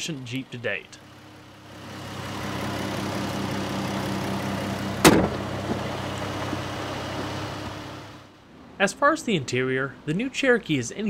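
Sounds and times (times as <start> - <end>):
car engine idling: 0.0 - 8.4
loud slam: 5.0 - 5.8.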